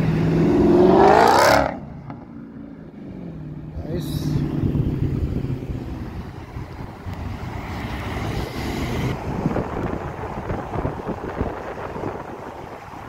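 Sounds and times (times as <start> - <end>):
road traffic passing: 0.0 - 13.0
wind buffeting microphone: 4.3 - 13.0.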